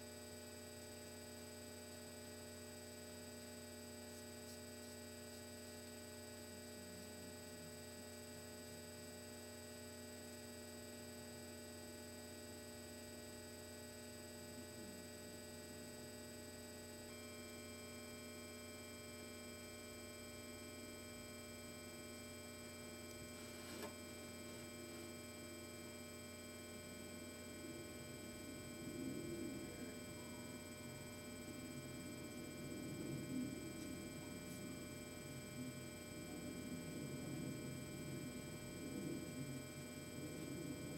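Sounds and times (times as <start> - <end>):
steady electrical hum: 0.0 - 40.9
soft rustling: 23.4 - 23.9.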